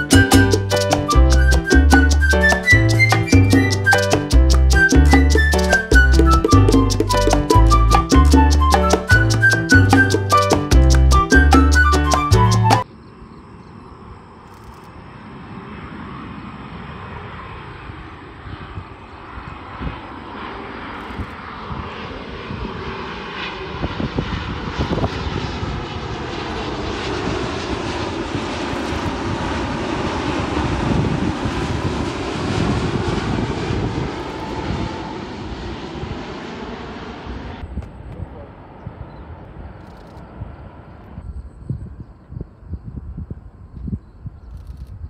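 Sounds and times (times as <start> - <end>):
jet engines rumbling and whining: 0.0 - 7.6, 12.8 - 42.4.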